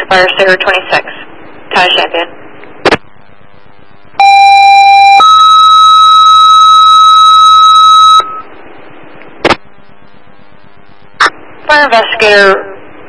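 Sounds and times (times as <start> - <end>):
two-tone pager alert: 4.2 - 8.4
radio squelch noise: 9.1 - 12.6.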